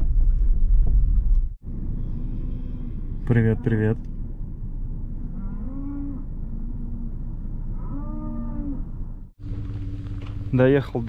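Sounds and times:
steady low rumble: 0.0s - 5.5s, 8.8s - 11.0s
cattle mooing: 1.8s - 4.0s, 5.1s - 9.2s.

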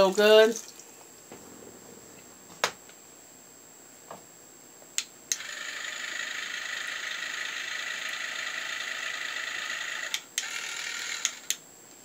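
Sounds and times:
small motor whirring: 5.3s - 11.6s.

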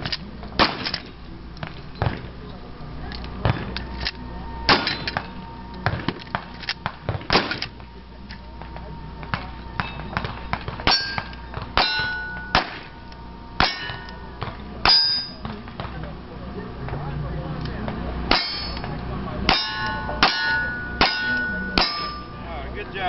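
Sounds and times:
shotgun shots: 0.6s - 1.0s, 5.9s - 7.7s, 12.5s - 12.9s
gun handling clicks: 3.1s - 4.2s, 5.1s - 6.8s
steel plate clang: 10.8s - 13.0s, 13.6s - 15.5s, 18.3s - 18.9s, 19.5s - 22.4s.

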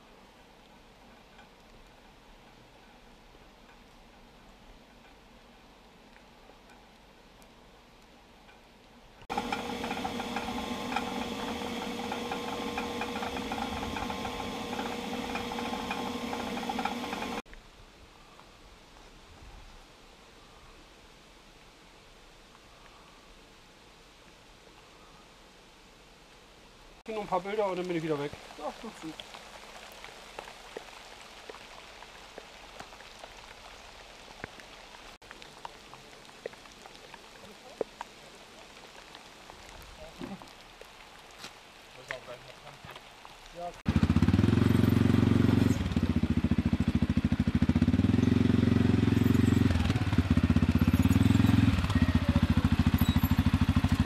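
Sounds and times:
steady rain on wet ground: 0.0s - 54.0s
pump machine humming and rattling: 9.3s - 17.4s, 43.9s - 54.0s.

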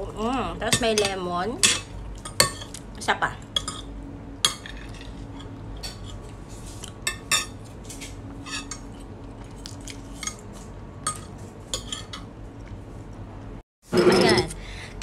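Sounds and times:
cutlery scraping a ceramic plate: 4.5s - 9.0s, 10.1s - 12.3s, 13.9s - 14.5s.

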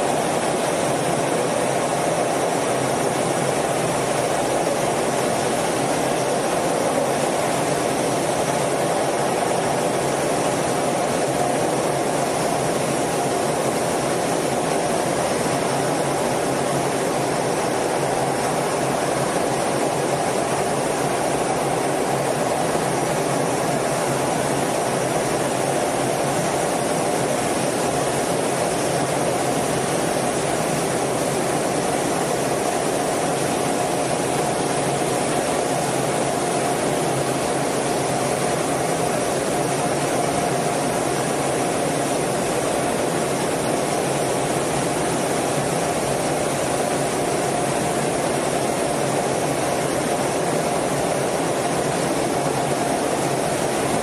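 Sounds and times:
jet engine and airflow noise: 0.0s - 54.0s.

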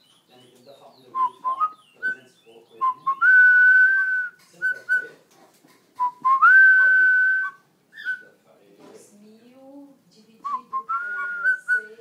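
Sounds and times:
bird whistling loudly: 6.8s - 8.2s.

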